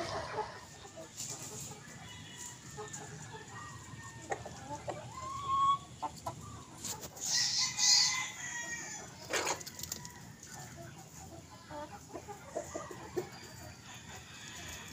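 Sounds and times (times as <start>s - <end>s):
chickens clucking: 0.0s - 14.9s.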